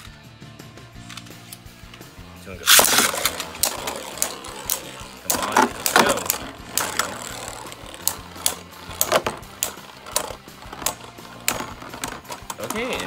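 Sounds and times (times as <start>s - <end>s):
spinning tops clashing: 2.0s - 13.0s
plastic clicks and knocks: 2.7s - 13.0s.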